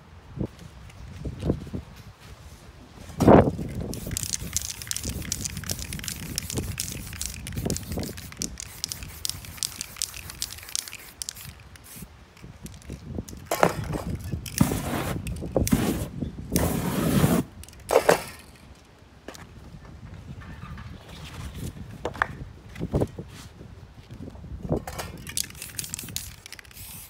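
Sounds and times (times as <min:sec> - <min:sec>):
paint catching fire: 0:03.5 - 0:12.1
spray paint can hissing: 0:03.6 - 0:12.8, 0:14.5 - 0:17.4, 0:25.3 - 0:27.0
hands rustling stencil: 0:03.7 - 0:12.1.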